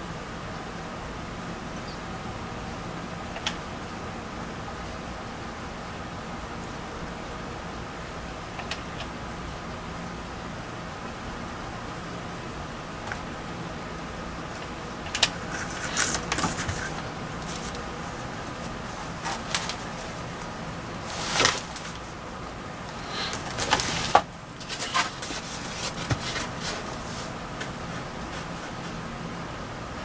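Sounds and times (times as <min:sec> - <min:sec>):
steady background hum: 0:00.0 - 0:30.0
foam board scraping and rustling: 0:15.4 - 0:20.2, 0:21.0 - 0:22.1, 0:23.2 - 0:29.0.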